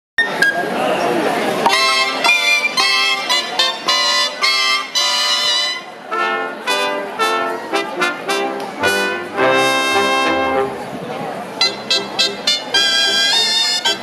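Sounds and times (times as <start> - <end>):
wind band playing dance music: 1.7 - 14.0.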